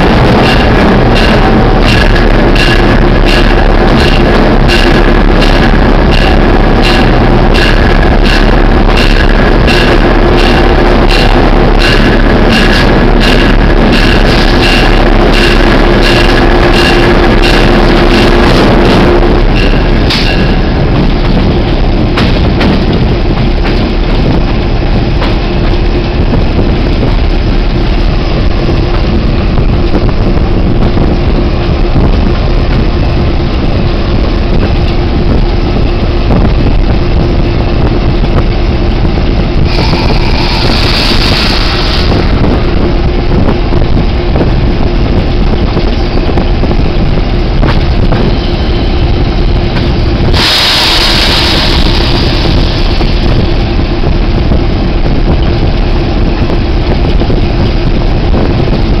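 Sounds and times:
diesel locomotive engine drone: 0.0 - 59.0
hiss bursts: 50.4 - 53.0.

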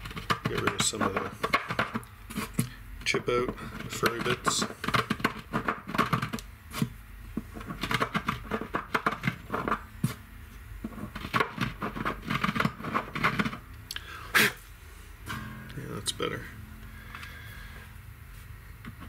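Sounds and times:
hand tool scraping wood: 0.0 - 6.9, 10.8 - 13.6.

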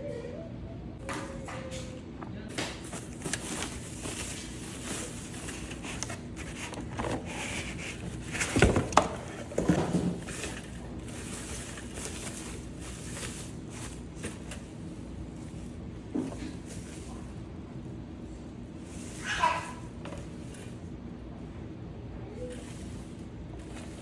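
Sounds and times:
plastic wrapping crinkling: 2.8 - 14.7.

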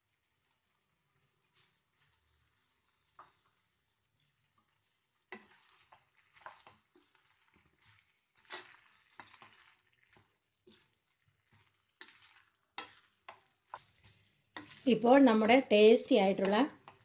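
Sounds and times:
spatula scraping and squelching: 5.3 - 15.7.

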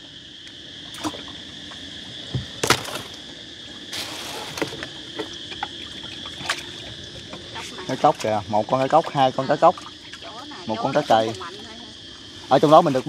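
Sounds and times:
insects chirring: 0.0 - 13.0
knocks and thumps of handling fish: 2.2 - 3.2.

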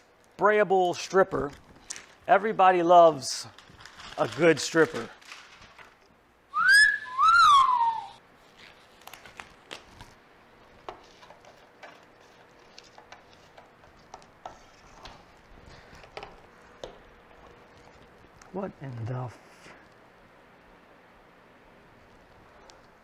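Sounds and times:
wolf whistle: 6.5 - 8.2.

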